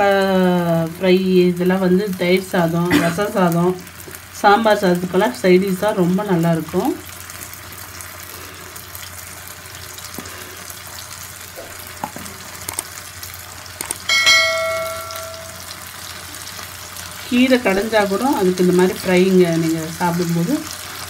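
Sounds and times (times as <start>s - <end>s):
plantain sizzling in oil: 0.0s - 21.0s
bell chime: 14.1s - 15.8s.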